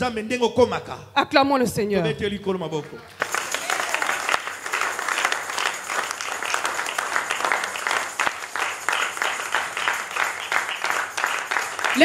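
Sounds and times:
congregation applauding: 3.0s - 12.0s.

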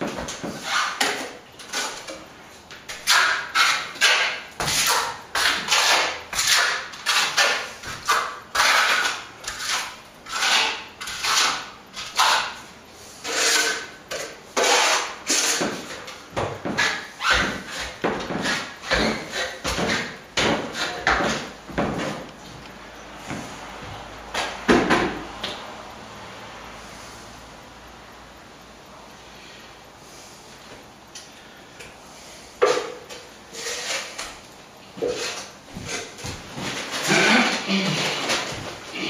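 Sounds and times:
trowel scraping plaster on wall: 0.0s - 2.2s, 2.9s - 22.3s, 32.6s - 34.4s, 35.0s - 39.0s.

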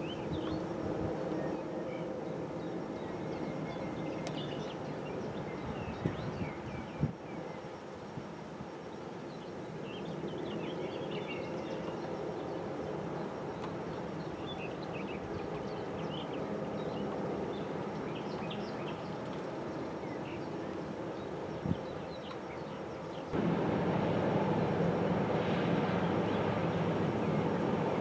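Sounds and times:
container ship drone: 23.4s - 28.0s.

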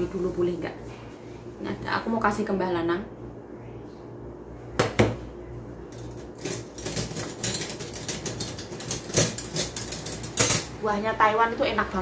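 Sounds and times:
dishes and cutlery clinking: 5.9s - 10.8s.

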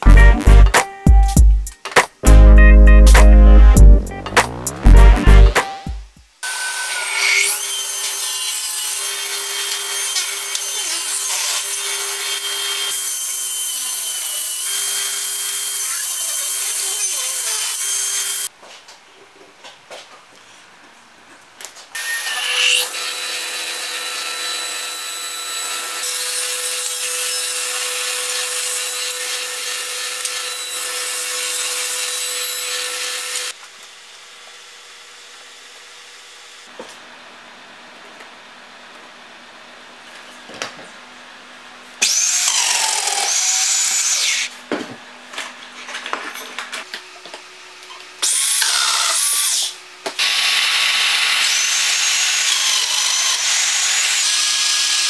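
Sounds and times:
power tool cutting wood: 6.4s - 18.5s, 22.0s - 36.7s, 42.0s - 44.6s, 48.1s - 55.0s.

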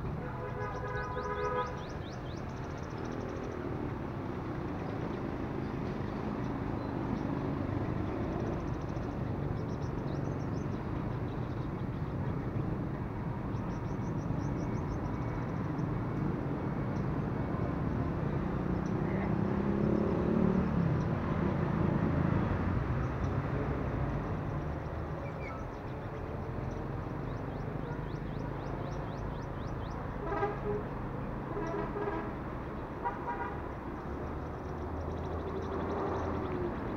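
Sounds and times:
road traffic: 0.0s - 36.9s
vehicle horn toot: 0.2s - 1.9s, 30.2s - 30.9s, 31.5s - 32.4s, 33.0s - 33.6s
sunbirds trilling: 0.7s - 4.6s, 24.2s - 30.2s, 33.6s - 36.9s
vehicle passing: 15.5s - 25.2s.

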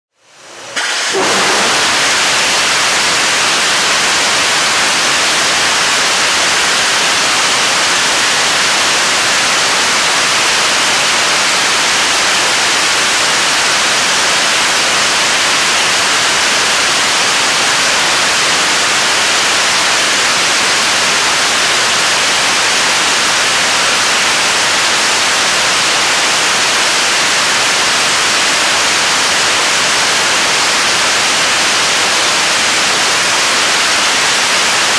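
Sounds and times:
rocket engine roaring: 0.4s - 3.6s.

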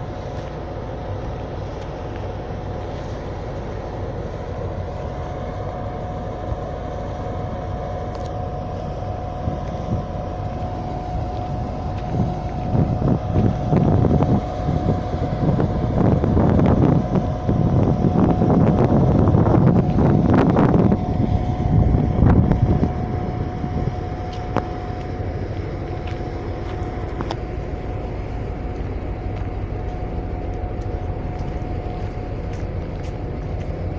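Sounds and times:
diesel locomotive idling: 0.0s - 33.9s
wind buffeting microphone: 0.0s - 33.9s.

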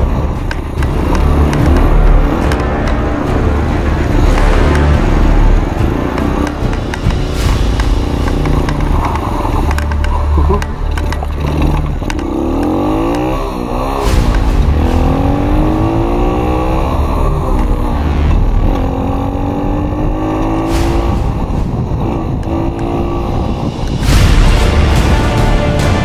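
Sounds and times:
motocross bike engine accelerating: 0.0s - 23.6s
wind rumble on microphone: 14.1s - 24.5s.

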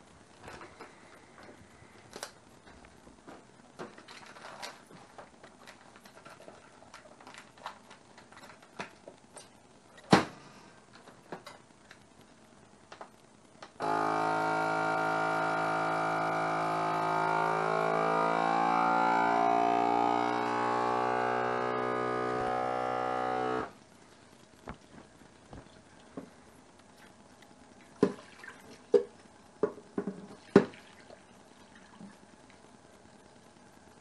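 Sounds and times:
vacuum pump humming: 13.8s - 23.8s.

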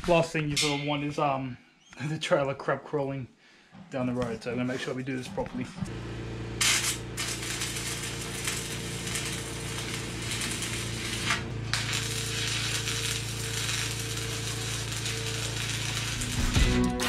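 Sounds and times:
welder arc crackling: 5.8s - 17.0s.

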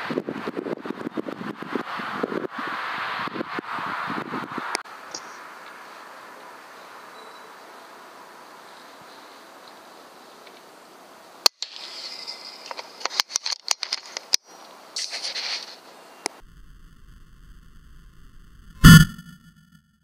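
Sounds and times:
short rustling: 15.0s - 15.9s.

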